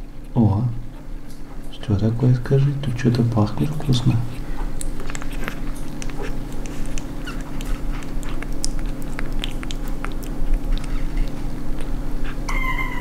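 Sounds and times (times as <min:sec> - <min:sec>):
steady low hum: 0:00.0 - 0:13.0
puppy licking wet mouth clicks: 0:03.6 - 0:12.6.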